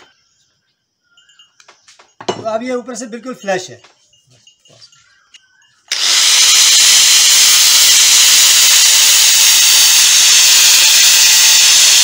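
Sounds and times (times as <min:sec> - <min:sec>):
angle grinder grinding steel: 0:05.9 - 0:12.0.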